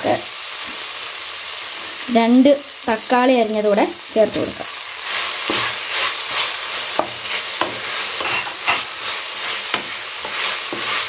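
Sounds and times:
vegetables sizzling in oil: 0.0s - 11.0s
spatula knocking and scraping pan: 5.3s - 11.0s.

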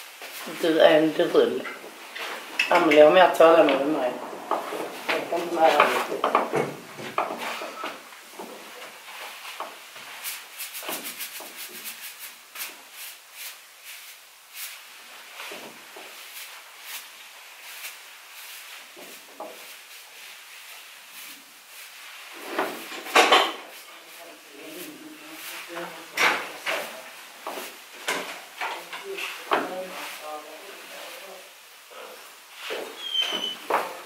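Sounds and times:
rubbing and rustling: 0.0s - 34.0s.

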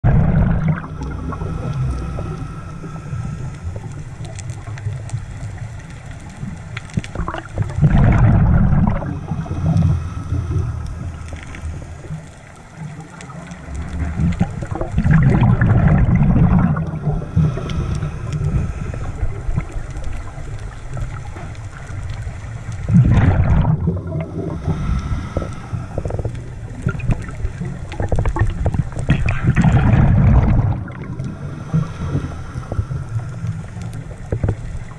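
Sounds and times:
exhaled bubbles gurgling underwater: 0.0s - 34.9s
underwater water noise: 0.0s - 34.9s.

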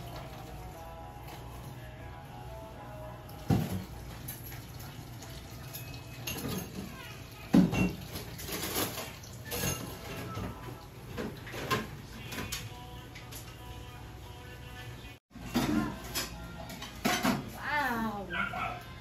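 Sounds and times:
dishes and utensils clattering: 3.4s - 13.6s, 15.3s - 17.6s.

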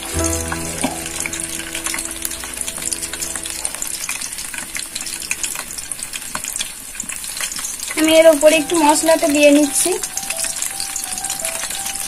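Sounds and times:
low steady hum: 0.0s - 8.0s.

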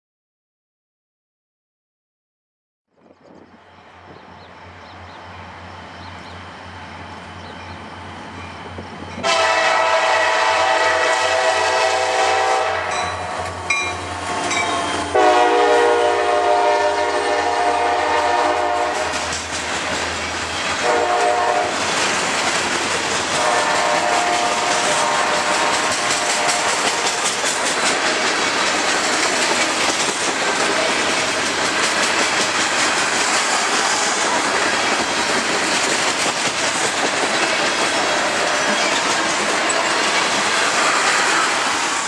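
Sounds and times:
diesel train engine rumble: 3.3s - 42.0s
train air horn blasts: 9.2s - 13.5s, 14.3s - 19.4s, 20.8s - 21.8s, 23.3s - 27.4s, 38.0s - 39.0s
wheels clattering over rail joints: 21.8s - 40.6s.

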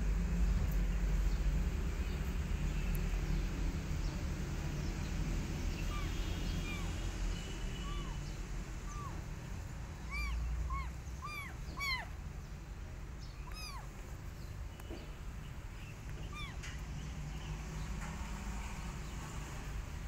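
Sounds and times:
kitten meowing: 5.7s - 9.3s, 10.0s - 12.2s, 13.3s - 14.1s, 16.2s - 16.6s.

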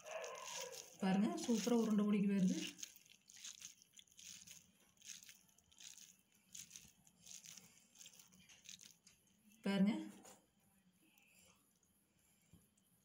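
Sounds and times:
sticky food squished by hand: 0.0s - 9.2s.

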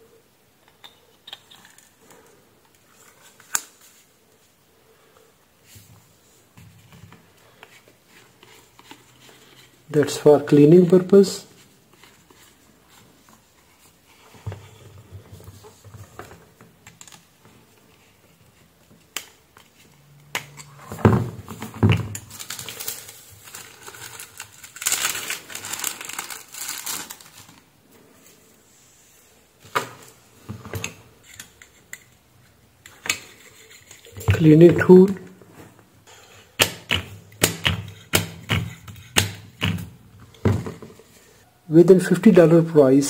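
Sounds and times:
plastic bag crinkling: 22.2s - 27.7s.

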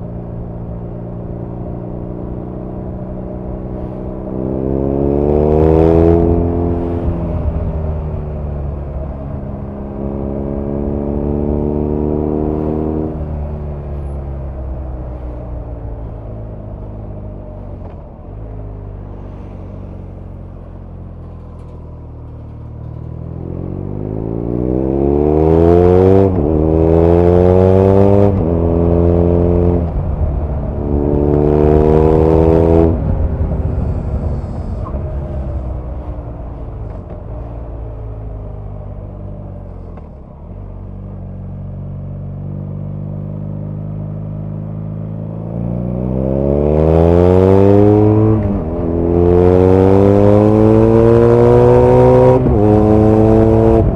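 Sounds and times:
motorcycle engine exhaust: 29.5s - 41.8s.

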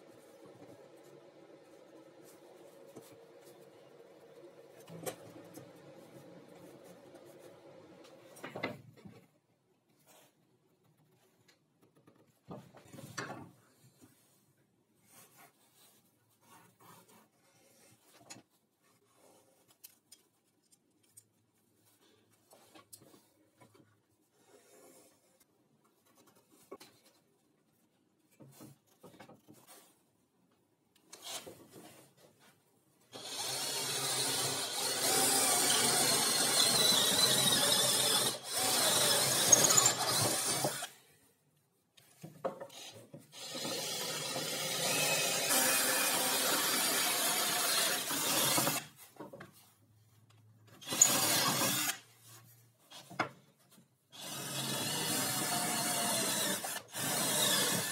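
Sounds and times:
power drill boring into wood: 33.1s - 40.9s, 42.7s - 48.9s, 50.8s - 52.0s, 54.1s - 57.9s.

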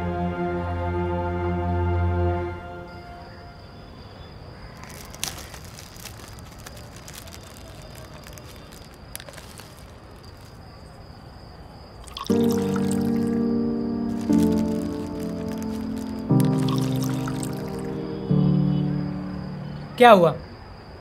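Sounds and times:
background music: 0.0s - 3.3s, 12.3s - 20.0s
cricket trill: 2.7s - 21.0s.

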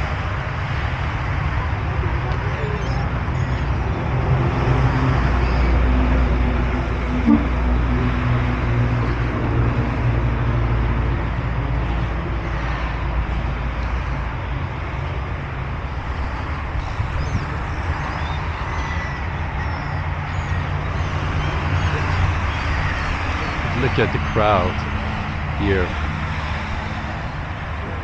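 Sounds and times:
road traffic passing: 0.0s - 28.0s
faint high bird calls: 2.0s - 3.9s, 16.8s - 24.6s.

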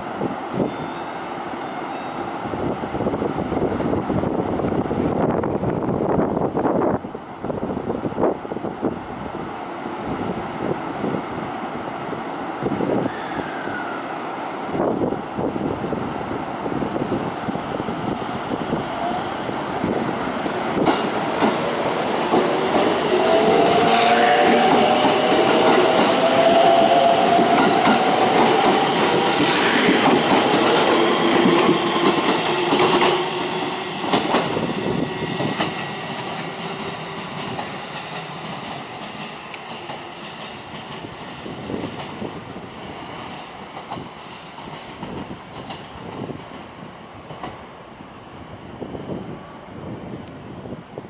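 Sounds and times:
electric train motors whining: 18.8s - 36.5s
wheels clacking on rails: 19.8s - 47.6s.

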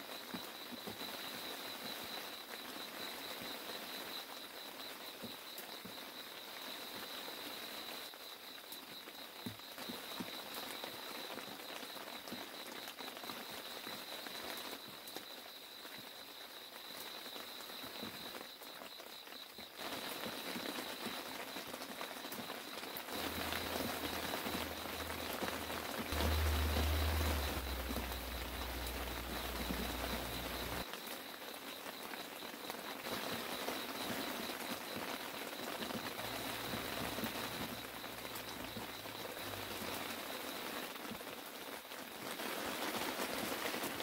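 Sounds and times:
rain pattering on water and rocks: 0.0s - 44.0s
low rumble: 23.2s - 30.8s.

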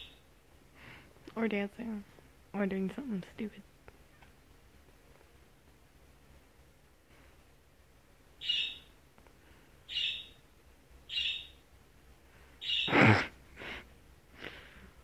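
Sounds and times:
cockatoo calls: 8.4s - 8.9s, 9.9s - 10.4s, 11.1s - 11.6s, 12.6s - 13.3s.

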